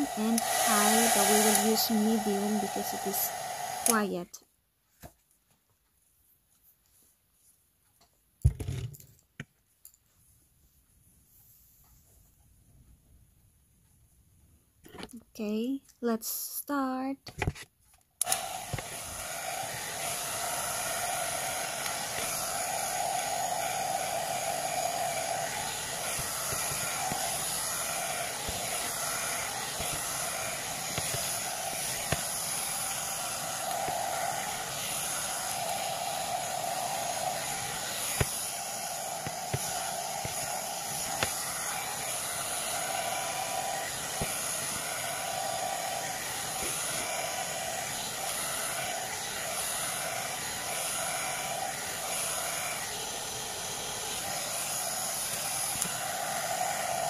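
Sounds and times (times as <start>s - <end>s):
hot-air brush whirring: 0.0s - 4.3s, 18.2s - 57.0s.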